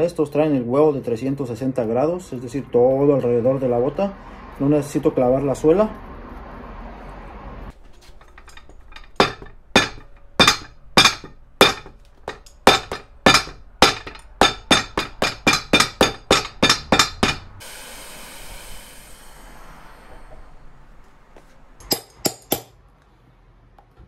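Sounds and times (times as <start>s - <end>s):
hammer striking rubber sole: 9.1s - 17.6s.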